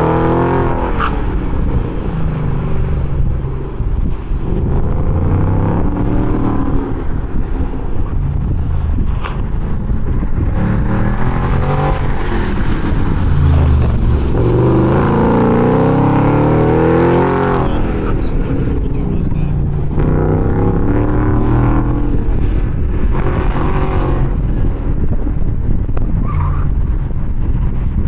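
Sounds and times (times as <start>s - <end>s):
car engine accelerating and lifting: 0.0s - 28.0s.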